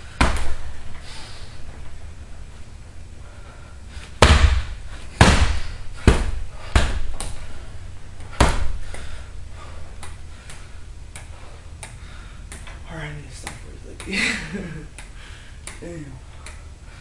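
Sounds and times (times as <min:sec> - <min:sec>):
punching bag heavy thuds: 0:04.2 - 0:07.2, 0:08.3 - 0:08.8.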